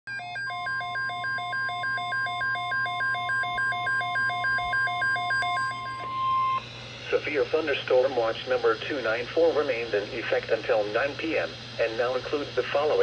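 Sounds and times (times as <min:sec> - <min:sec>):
two-tone electronic alarm: 0:00.1 - 0:06.6.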